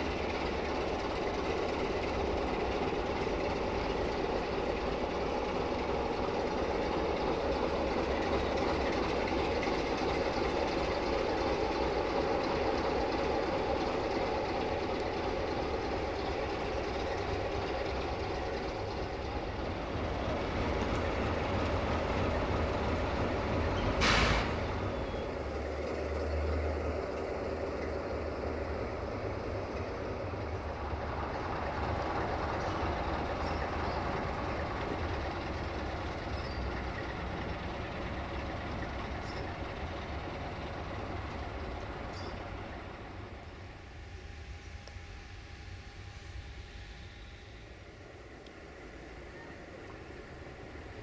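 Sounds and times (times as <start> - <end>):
locomotive engine rumbling: 0.0 - 51.0
released air hiss: 23.8 - 24.8.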